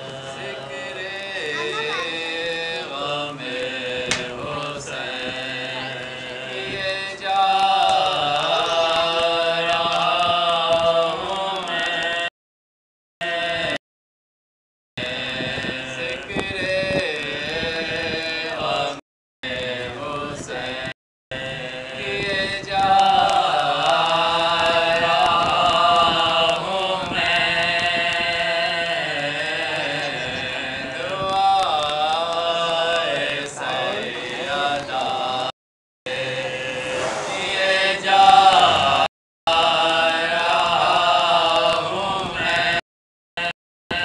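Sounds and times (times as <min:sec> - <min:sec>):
men chanting a mourning elegy: 0:00.0 - 0:12.3, 0:28.2 - 0:35.5, 0:36.1 - 0:42.1.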